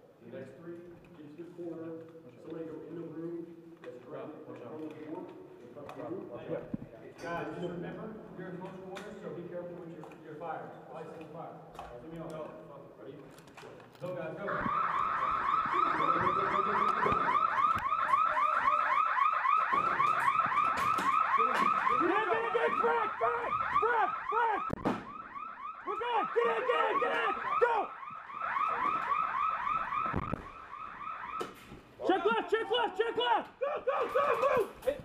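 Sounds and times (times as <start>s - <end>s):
electronic alarm rapid warbling: 14.5s - 31.4s.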